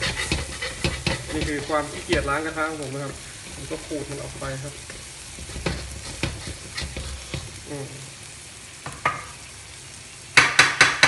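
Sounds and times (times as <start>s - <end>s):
metal spatula scraping a wok: 0.0s - 7.7s
faint sizzle: 0.0s - 11.0s.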